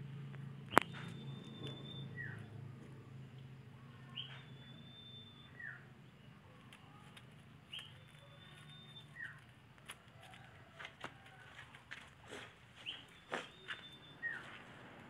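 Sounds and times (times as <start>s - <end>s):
high whistling bird call: 0.7s - 2.6s, 4.0s - 5.9s, 7.7s - 9.4s, 12.8s - 14.6s.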